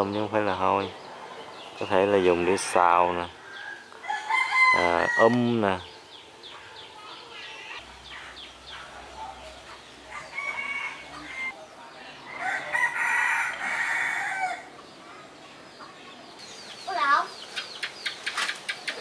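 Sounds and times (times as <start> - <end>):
rooster crowing: 3.4 - 5.6, 10.1 - 11.5, 12.3 - 14.7.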